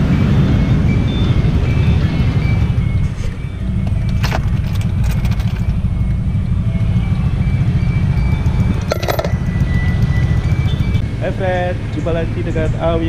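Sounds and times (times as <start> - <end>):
car engine idling: 2.8 - 13.0.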